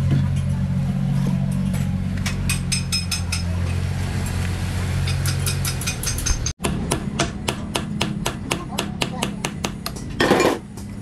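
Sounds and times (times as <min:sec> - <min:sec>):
low engine hum: 0:00.0 - 0:08.3
metal tools clinking on wheel: 0:05.1 - 0:06.6.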